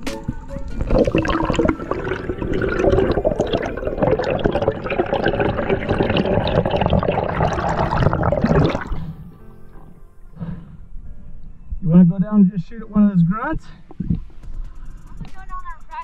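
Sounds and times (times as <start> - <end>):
underwater water rushing and bubbling: 0.8 - 9.3.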